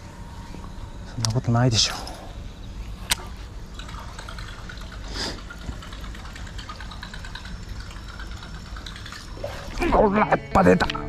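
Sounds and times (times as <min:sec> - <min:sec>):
faint watery churning: 0:00.0 - 0:10.1
fishing reel cranking: 0:03.0 - 0:09.8.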